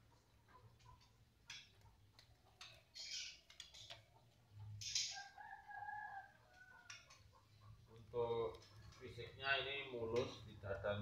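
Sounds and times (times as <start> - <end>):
rooster crowing: 5.2 - 7.0.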